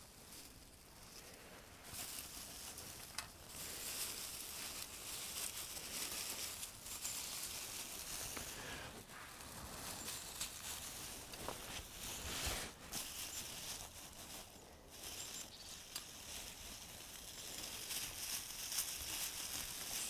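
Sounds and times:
dry grass rustling and crinkling: 0.0 - 20.0
stems snapping: 2.7 - 3.4.

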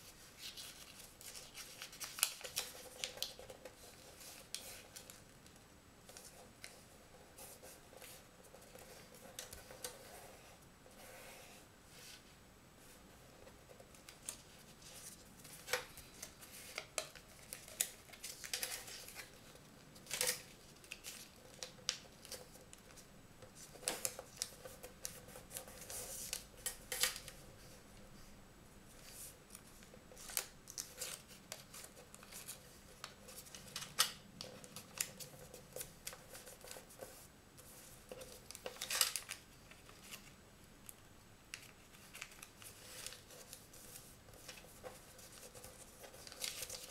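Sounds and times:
paper rustling and crackling: 0.0 - 5.3, 13.4 - 27.8, 28.9 - 40.4, 41.5 - 46.9.

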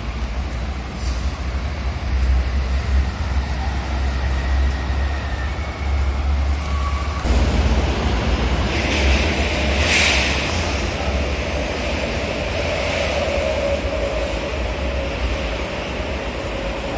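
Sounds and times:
road traffic: 0.0 - 16.9
hiss: 8.7 - 11.2.

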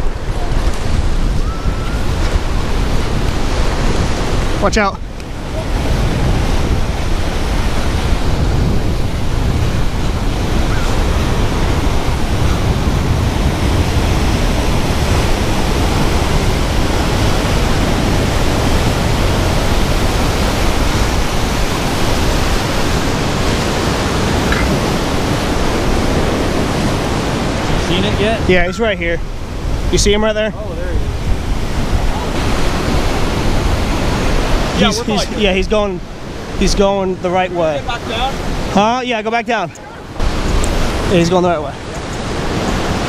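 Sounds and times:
wind buffeting microphone: 0.0 - 38.8, 39.8 - 43.0
ocean surf breaking: 0.0 - 43.0.

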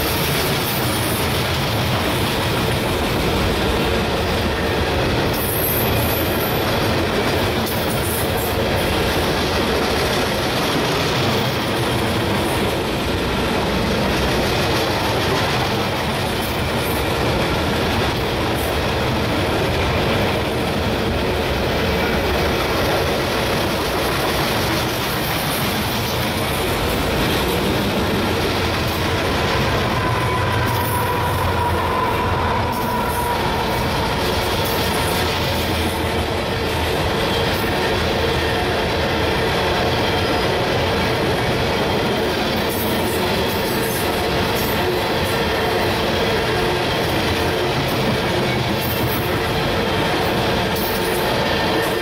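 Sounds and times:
freight train wheels on rail: 0.0 - 52.0
wheel squeal: 29.5 - 35.2.

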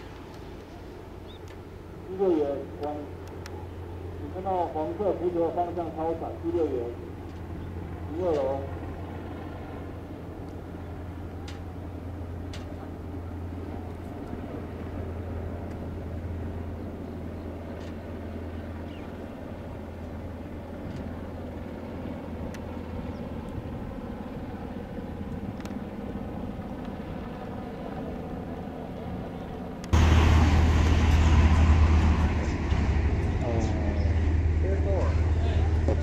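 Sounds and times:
distant engine drone: 0.0 - 36.0
loud noise: 30.0 - 34.7.

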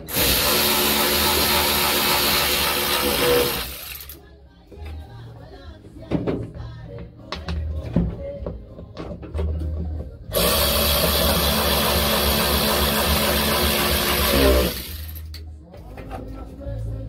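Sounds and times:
cordless power tool running: 0.0 - 4.1, 10.3 - 15.2.

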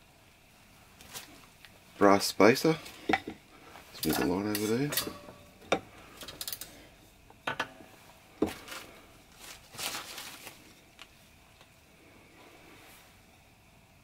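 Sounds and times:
metal tubes clicking together: 4.0 - 6.8
handling rustle: 8.4 - 11.7.

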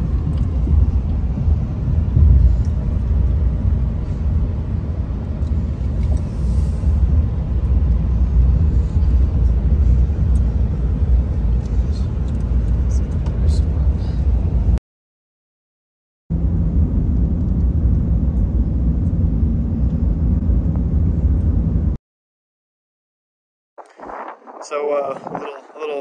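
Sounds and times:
road and engine rumble in cab: 0.0 - 14.8, 16.3 - 22.0.

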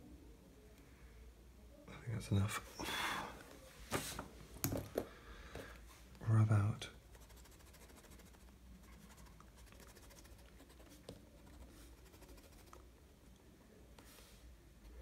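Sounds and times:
pencil scratching on paper: 7.1 - 12.8.

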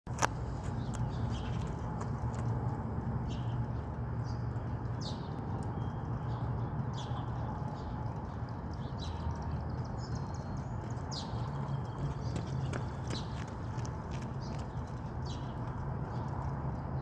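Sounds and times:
running footsteps on asphalt: 0.1 - 5.4, 9.6 - 17.0
steady low rumble: 0.1 - 17.0.

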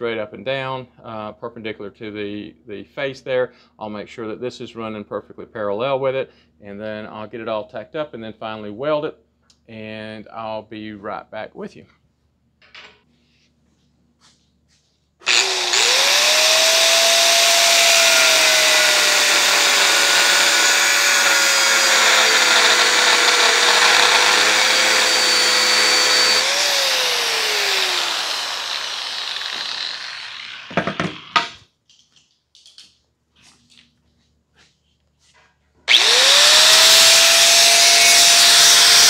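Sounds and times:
angle grinder grinding steel: 15.2 - 31.6, 35.9 - 39.0
knocks: 30.7 - 31.6.

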